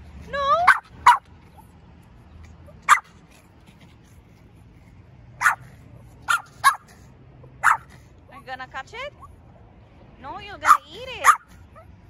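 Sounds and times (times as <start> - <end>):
small dog barking: 0.6 - 1.3, 2.8 - 3.2, 5.4 - 7.0, 7.6 - 7.9, 10.6 - 11.9.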